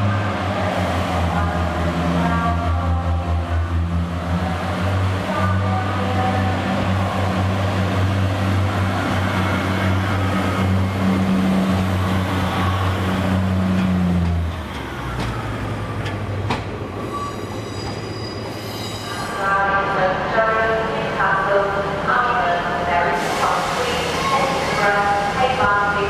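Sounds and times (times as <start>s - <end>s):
train wheel and rail noise: 0.0s - 26.0s
faint high squeal: 17.0s - 19.4s.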